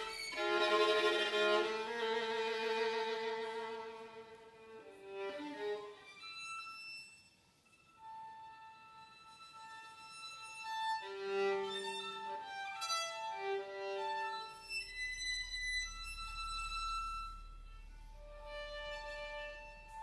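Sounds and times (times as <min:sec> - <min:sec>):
solo violin: 0:00.0 - 0:20.0.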